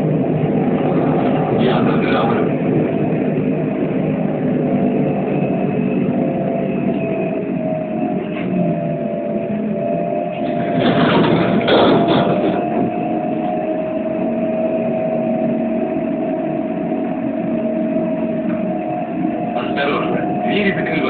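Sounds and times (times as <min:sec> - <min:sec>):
electric drive whine: 0:00.0 - 0:21.0
road and cabin noise: 0:00.0 - 0:21.0
rush of noise: 0:00.0 - 0:21.0.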